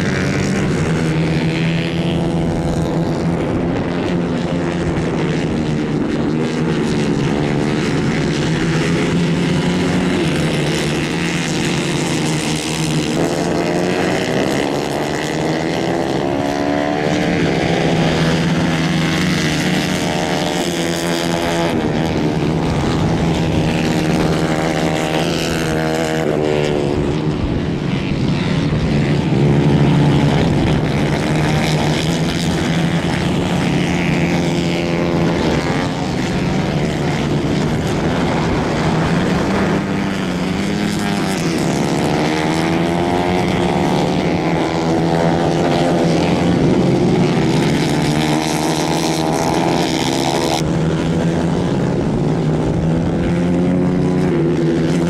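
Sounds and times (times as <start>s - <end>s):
racing kart engines revving: 0.0s - 55.0s.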